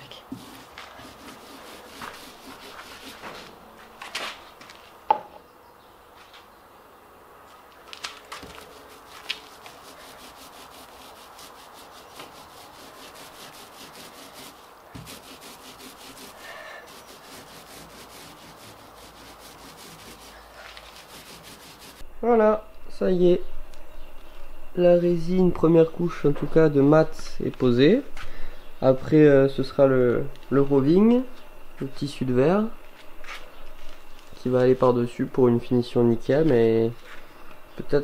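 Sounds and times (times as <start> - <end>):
roller rubbing resin strokes: 0.3 - 3.5, 8.4 - 22.0.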